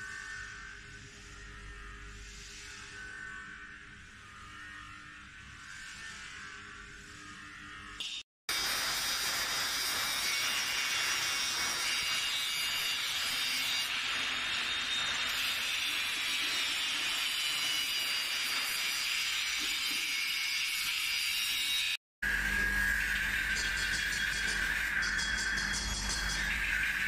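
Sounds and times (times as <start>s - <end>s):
angle grinder grinding metal: 8.5s - 22.0s.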